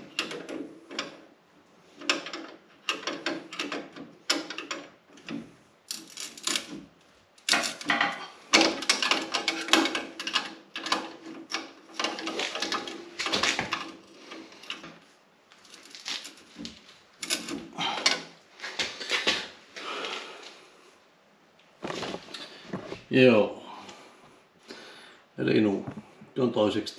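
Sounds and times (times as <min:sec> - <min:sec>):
hand tool clicking and scraping metal: 0:07.4 - 0:14.9.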